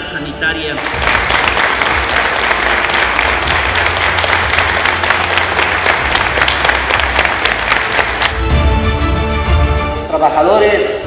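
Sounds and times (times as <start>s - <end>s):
audience applauding: 0.8s - 8.5s.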